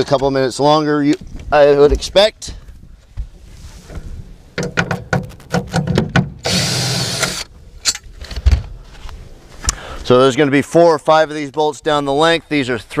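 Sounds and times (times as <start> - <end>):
cordless drill running: 6.4 - 7.5.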